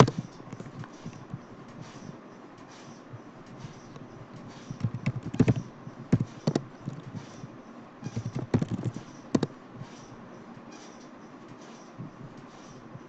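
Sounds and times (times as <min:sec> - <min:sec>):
typing on computer keyboard: 0:00.0 - 0:01.2, 0:04.7 - 0:07.3, 0:08.1 - 0:09.5.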